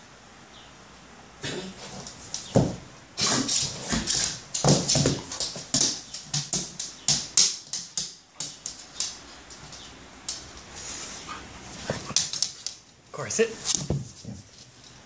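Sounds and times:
paw thumps: 1.8 - 10.5
dog claws clicking on floor: 1.8 - 11.1, 11.8 - 12.9.

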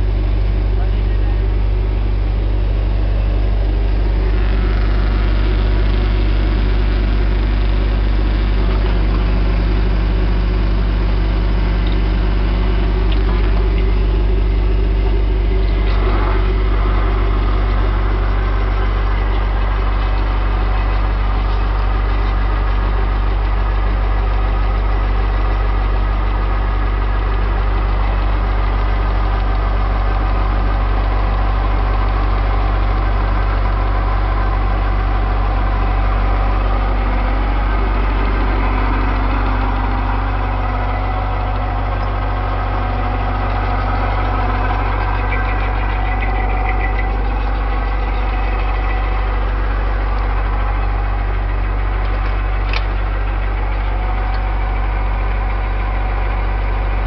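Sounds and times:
drilling rig engine drone: 0.0 - 57.0.

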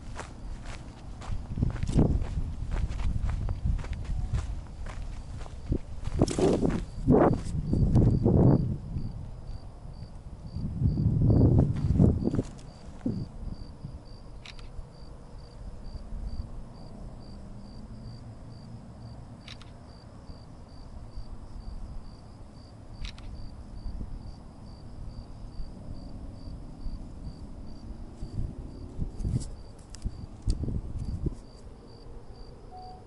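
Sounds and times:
cricket chirping: 0.0 - 33.0
low microphone rumble: 10.0 - 14.0
faint clicks: 19.4 - 19.8, 23.0 - 23.4.

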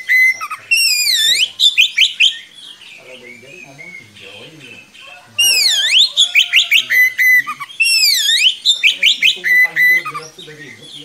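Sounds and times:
bird singing whistles and rattles: 0.0 - 2.7, 5.4 - 11.0.

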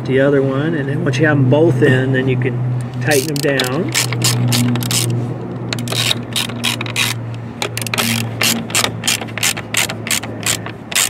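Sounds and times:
hand ratchet clicking: 2.9 - 11.0.

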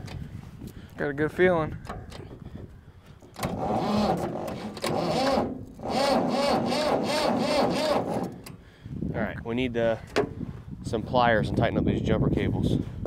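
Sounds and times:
starter cranking engine: 3.4 - 8.6.

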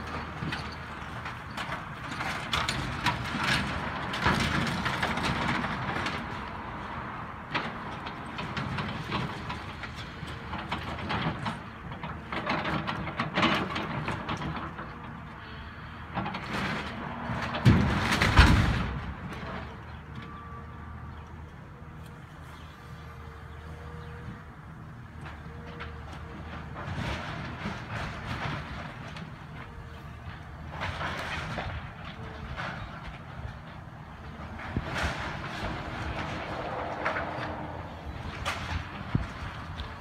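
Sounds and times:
excavator diesel engine running: 0.0 - 40.0
heavy crash of falling debris: 16.4 - 19.4.

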